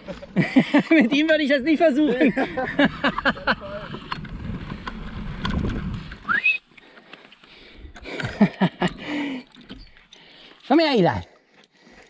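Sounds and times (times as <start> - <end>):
short rising whistle: 6.2 - 6.7.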